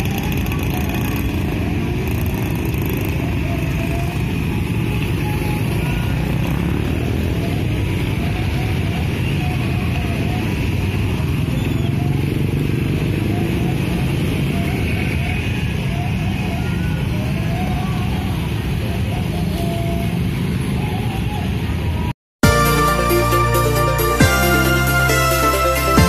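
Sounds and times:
motorcycle and car traffic: 0:00.0 - 0:22.2.

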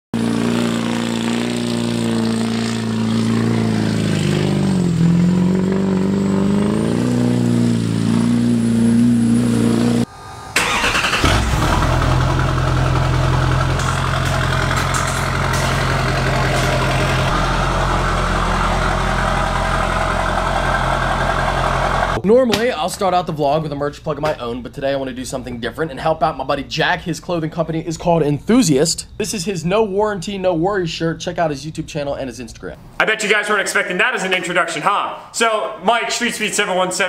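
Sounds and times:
diesel pickup starting and idling: 0:00.2 - 0:22.2
engine-like drone: 0:00.2 - 0:22.2.

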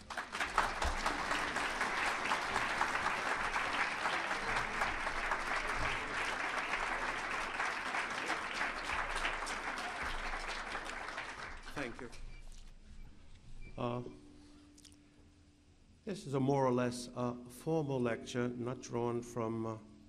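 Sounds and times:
audience applauding: 0:00.0 - 0:12.2.

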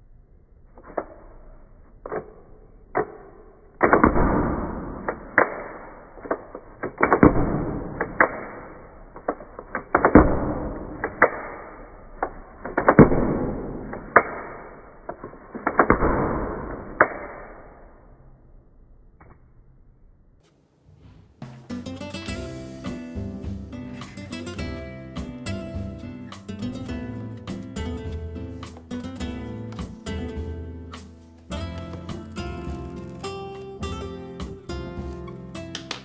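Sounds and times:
wooden clicks and snaps: 0:35.6 - 0:36.0.

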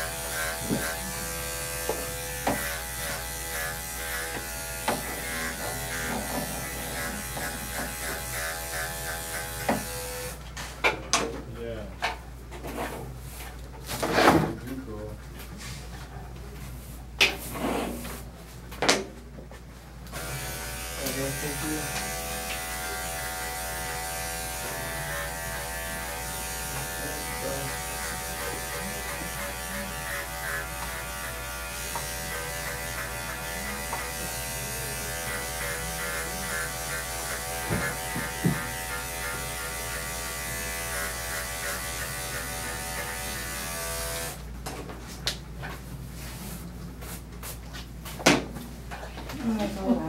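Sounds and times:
electric clippers running: 0:00.0 - 0:10.4, 0:20.1 - 0:44.4.

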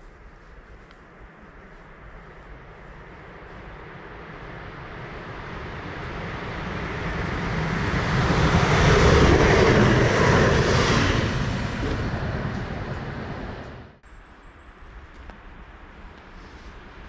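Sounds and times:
electric train passing: 0:02.6 - 0:16.2.

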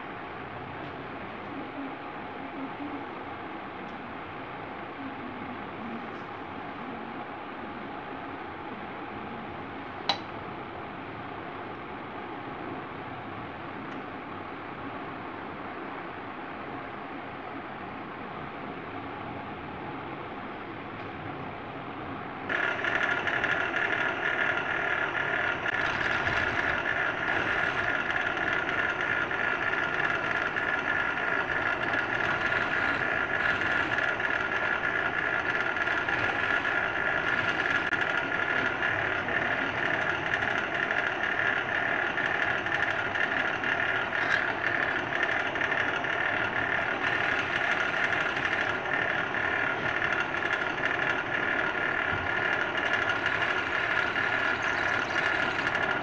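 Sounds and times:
drill bit drilling into metal: 0:22.5 - 0:39.2, 0:39.8 - 0:56.0
drill press motor running: 0:22.5 - 0:56.0.

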